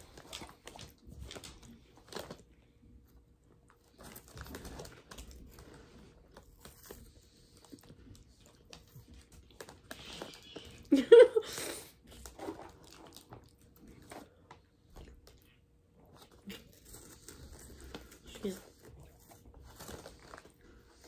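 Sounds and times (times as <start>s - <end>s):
plastic snack bag crinkling: 0.0s - 11.1s, 12.0s - 15.5s, 16.1s - 21.0s
crunching of snack eating: 12.0s - 21.0s.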